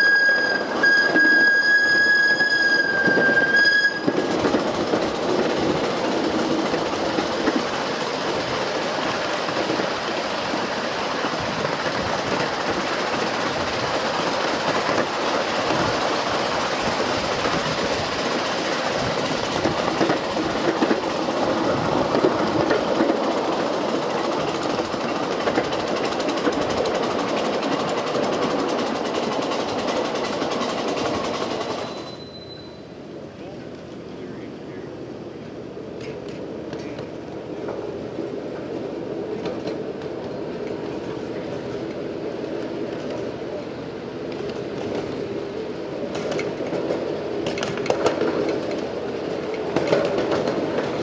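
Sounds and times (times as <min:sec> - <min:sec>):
steel wheels rumbling on rail: 0:00.0 - 0:51.0.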